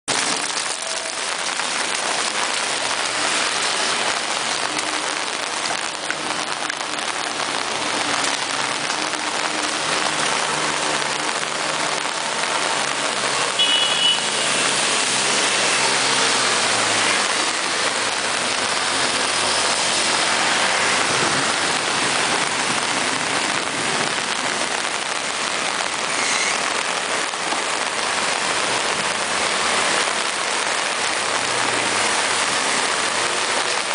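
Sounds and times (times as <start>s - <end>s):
car engines in flood water: 0.1s - 33.9s
heavy rain: 0.1s - 33.9s.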